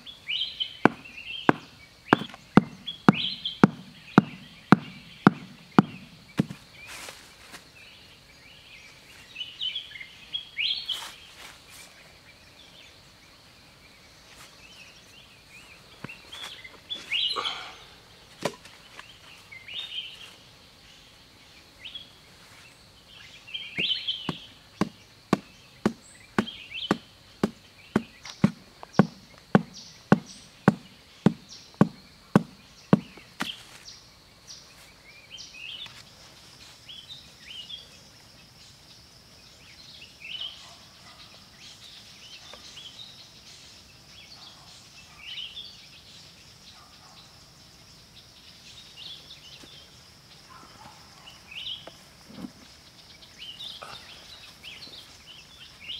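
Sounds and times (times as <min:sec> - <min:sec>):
birds chirping: 0:00.0 - 0:55.9
stone pounding wooden stake: 0:00.9 - 0:06.6, 0:23.8 - 0:33.6.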